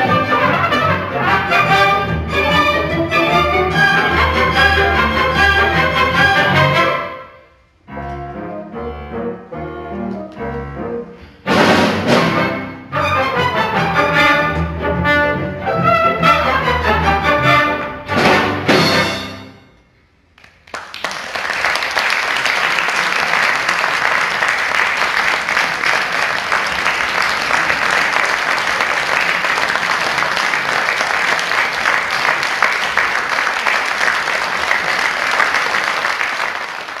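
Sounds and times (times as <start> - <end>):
audience applause: 20.4 - 37.0.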